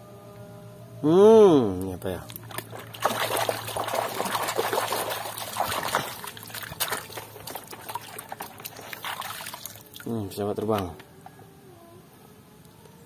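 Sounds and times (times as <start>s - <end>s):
water sloshing in metal basin: 2.2s - 10.9s.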